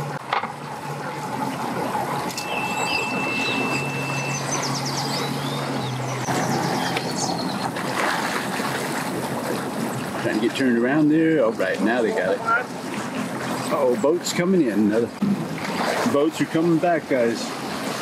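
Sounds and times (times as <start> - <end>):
outboard motor idling: 0.0 - 18.0
birds chirping: 2.3 - 8.0.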